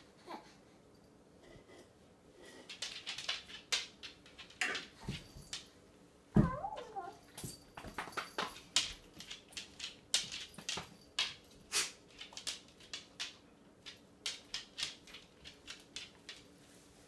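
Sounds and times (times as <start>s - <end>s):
dog claws clicking on wooden floor: 2.5s - 5.8s, 7.3s - 16.6s.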